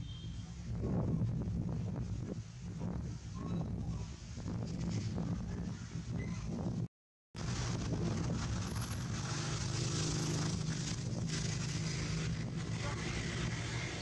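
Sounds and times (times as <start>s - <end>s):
outdoor background noise: 0.0s - 14.0s
low engine drone: 7.4s - 14.0s.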